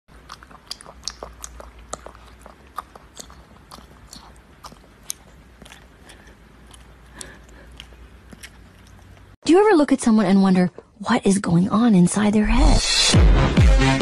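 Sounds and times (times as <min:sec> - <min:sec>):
puppy eating wet smacks: 0:00.1 - 0:09.4.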